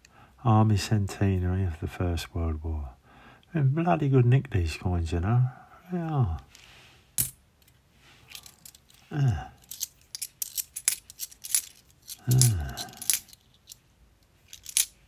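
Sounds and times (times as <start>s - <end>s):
man murmuring: 5.3s - 6.5s, 9.0s - 9.6s, 12.2s - 13.2s
coins clinking: 8.3s - 9.0s, 9.6s - 15.0s.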